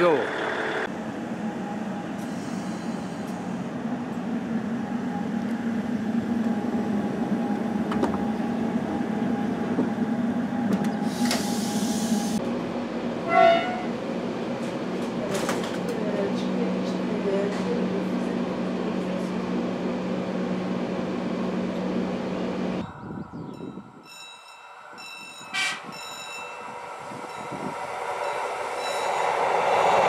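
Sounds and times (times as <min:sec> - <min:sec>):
diesel engine droning: 0:00.0 - 0:15.2.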